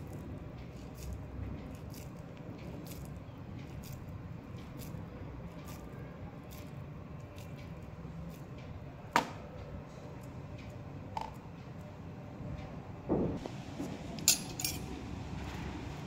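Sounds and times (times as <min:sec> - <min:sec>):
steady low hum: 0:00.0 - 0:16.0
clinks on a steel plate: 0:14.3 - 0:14.9.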